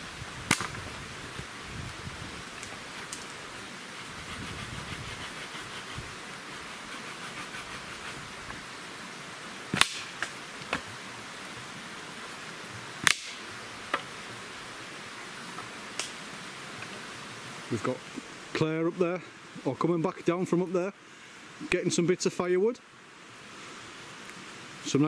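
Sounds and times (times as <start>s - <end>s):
steady hiss: 0.0s - 25.0s
dry sticks cracking: 0.5s - 0.8s, 9.7s - 10.9s, 13.0s - 14.1s, 15.9s - 16.2s.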